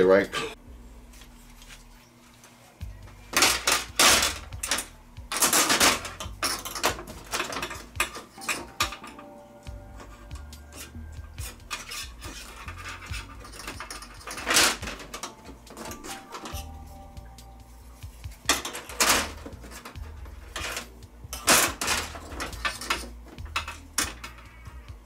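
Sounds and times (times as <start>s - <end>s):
metal parts clattering: 3.3s - 9.3s, 10.0s - 16.9s, 18.5s - 24.5s.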